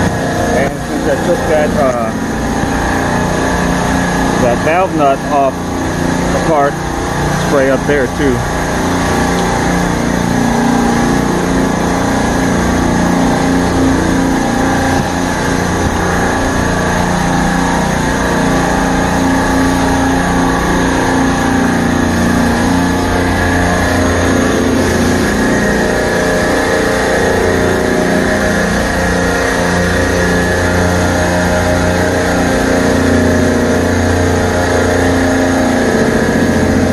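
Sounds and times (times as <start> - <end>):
refrigeration compressors humming: 0.0 - 36.9.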